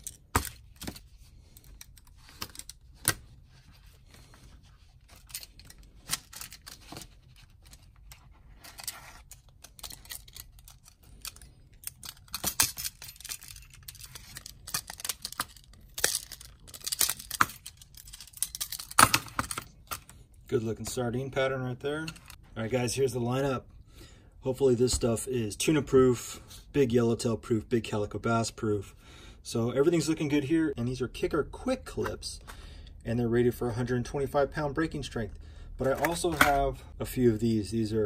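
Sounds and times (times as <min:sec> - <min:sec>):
metal hooks clicking and jingling: 0:09.5 - 0:19.7.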